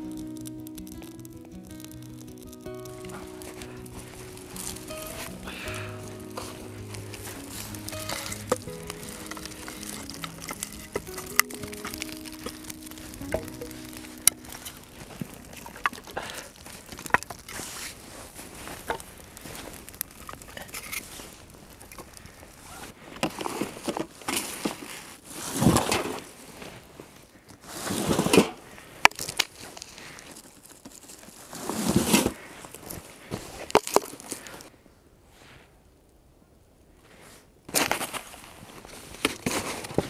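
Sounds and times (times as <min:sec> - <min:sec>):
small clicks: 0:00.0 - 0:17.9
rustling handling noise: 0:00.0 - 0:34.7, 0:37.0 - 0:40.0.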